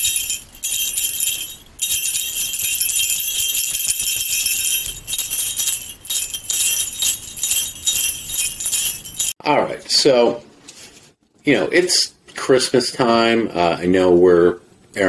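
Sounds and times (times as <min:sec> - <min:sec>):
sleigh bells jingling: 0:00.0 - 0:09.4.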